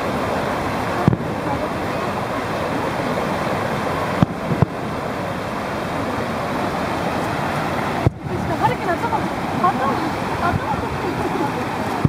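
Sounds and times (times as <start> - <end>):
steady background noise: 0.0 - 12.0
distant firework bangs: 4.1 - 4.9.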